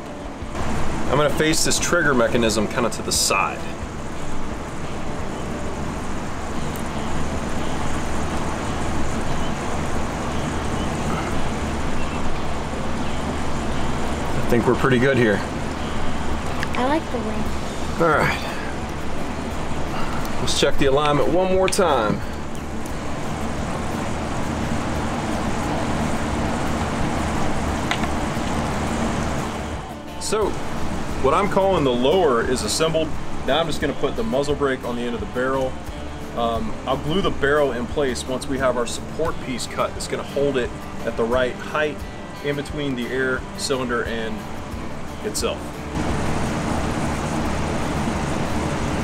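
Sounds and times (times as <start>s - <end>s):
background rumble and hiss: 0.0s - 49.0s.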